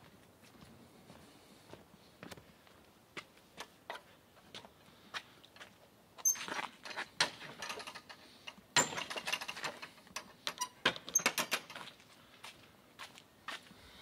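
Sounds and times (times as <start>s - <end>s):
footsteps on stone paving: 0.0s - 5.8s, 11.8s - 13.8s.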